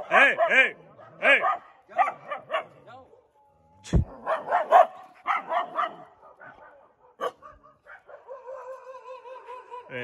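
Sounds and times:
dogs barking: 0.0 - 3.4, 4.0 - 10.0
loud thump: 3.9 - 4.1.

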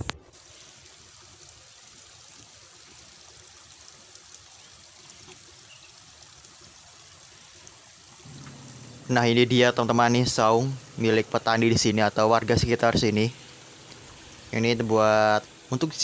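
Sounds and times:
water trickling: 0.0 - 16.0.

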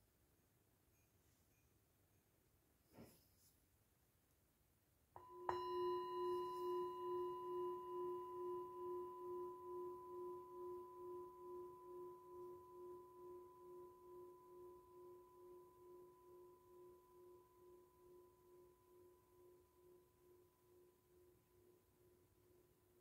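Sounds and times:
singing bowl ringing: 5.2 - 21.9.

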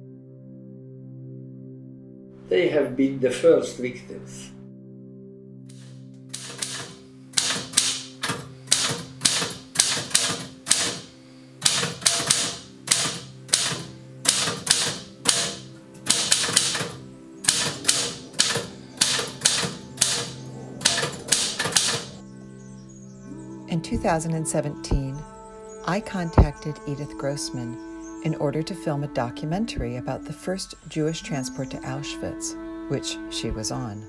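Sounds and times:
soft music bed: 1.2 - 6.3, 15.4 - 34.0
typewriter keys striking: 5.7 - 22.2.

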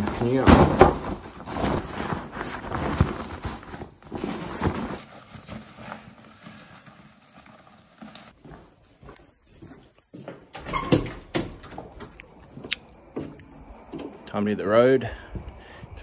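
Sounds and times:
nylon and fabric rustling: 0.0 - 9.9.

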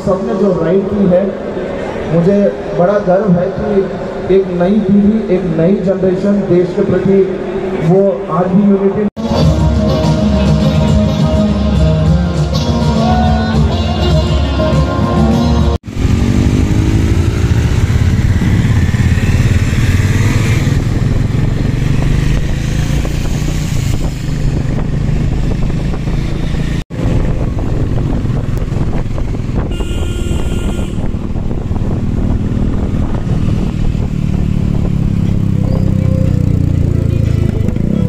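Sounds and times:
motorcycle engine running: 15.8 - 38.0.

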